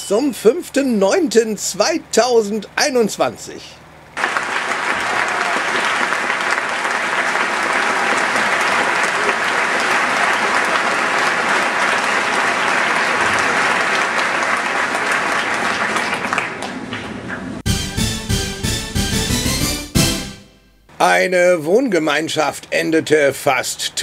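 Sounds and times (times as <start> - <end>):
audience applauding: 4.2 - 17.6.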